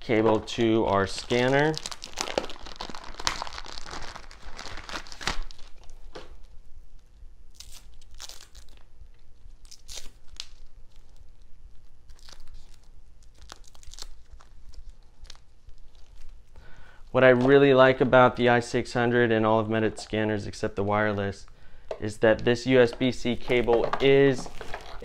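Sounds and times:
packaging wrapper crinkling: 0.2s - 6.5s, 7.6s - 16.5s, 22.8s - 25.0s.

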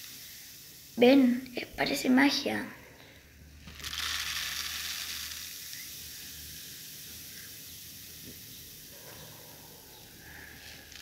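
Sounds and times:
styrofoam beads pouring into bowl: 0.0s - 1.4s, 3.6s - 8.9s, 10.2s - 11.0s
fizzing hiss: 0.0s - 2.6s, 3.7s - 11.0s.

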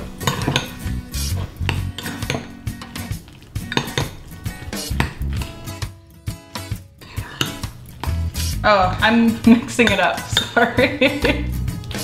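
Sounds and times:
metal spoon scraping oatmeal: 0.1s - 5.8s, 7.0s - 8.6s
spoon clinking against bowl: 3.6s - 4.2s, 9.8s - 10.6s.

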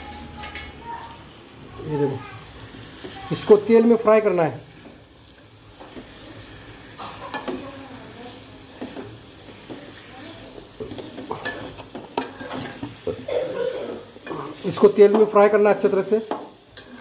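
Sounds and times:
food sizzling in hot oil: 0.0s - 17.0s
spatula scraping metal pan: 10.9s - 13.2s.

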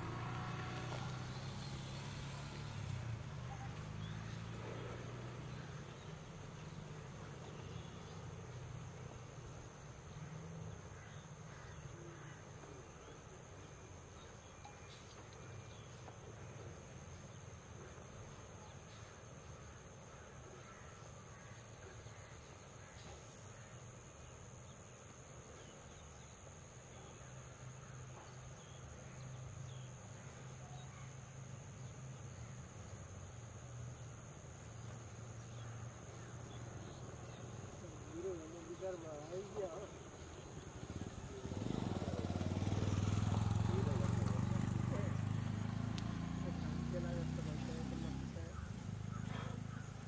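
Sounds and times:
insect drone: 0.0s - 50.0s
short bird calls: 48.6s - 50.0s.

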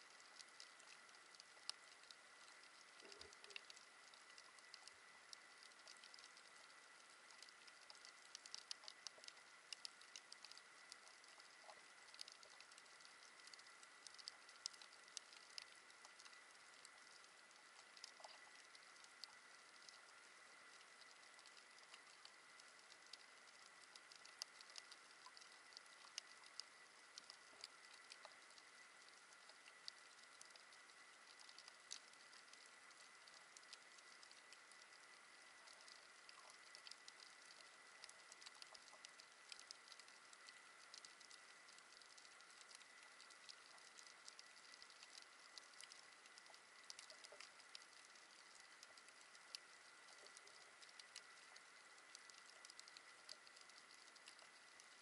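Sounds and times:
faint steady thin tone: 0.0s - 55.0s
underwater crackle of clicks: 0.0s - 55.0s.

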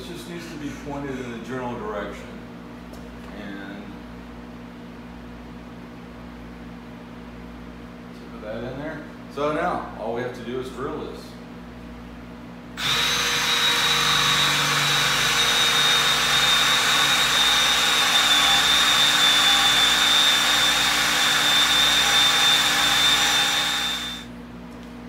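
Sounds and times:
cordless drill boring into wood: 12.8s - 24.3s.

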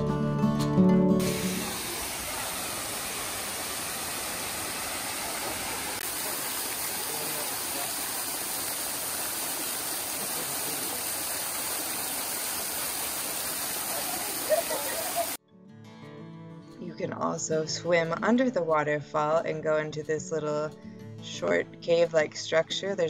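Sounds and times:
waterfall splashing into pool: 1.2s - 15.4s.

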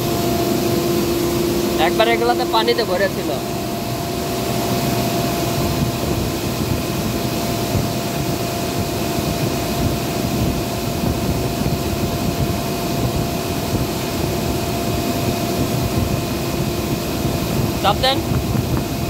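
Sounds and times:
industrial machinery rush: 0.0s - 8.7s
constant machinery hum: 0.0s - 19.0s.

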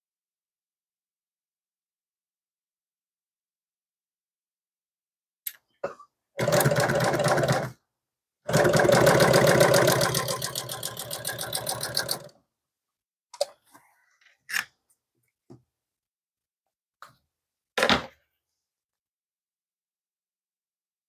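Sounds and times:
sewing machine stitching: 6.4s - 7.8s, 8.5s - 12.3s.

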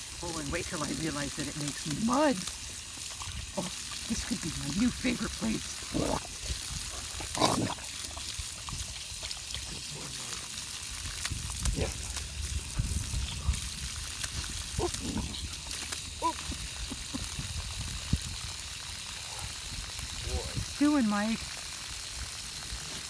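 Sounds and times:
water spraying onto grass: 0.0s - 23.0s.

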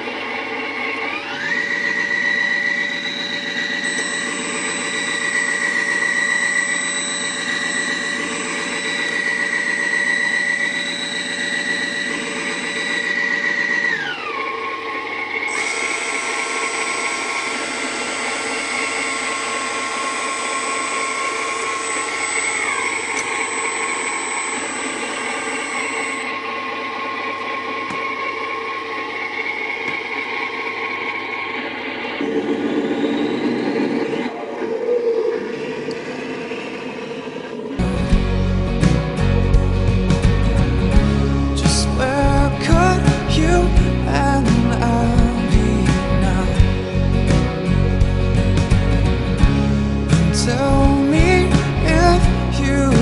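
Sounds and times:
toy hydraulic pump motor whine: 0.0s - 38.2s.

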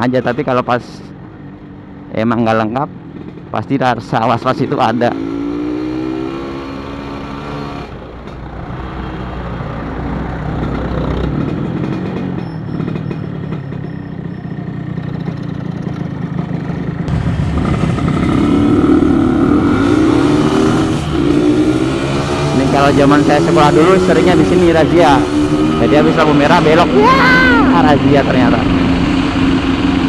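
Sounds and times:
road and wind noise: 0.0s - 30.0s
motorcycle engine running: 10.5s - 30.0s.

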